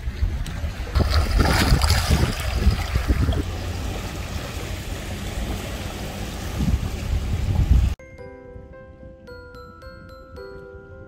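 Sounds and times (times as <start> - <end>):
wind buffeting microphone: 0.0 - 8.0.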